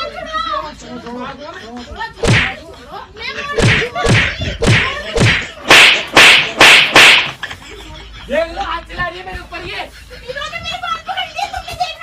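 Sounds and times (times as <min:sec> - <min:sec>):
hard slapping blows: 0:02.2 - 0:02.6, 0:03.6 - 0:07.4.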